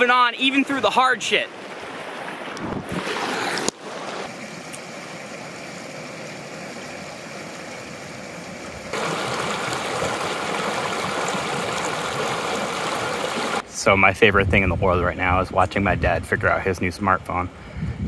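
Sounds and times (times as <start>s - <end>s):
river water rushing: 0.0s - 13.6s.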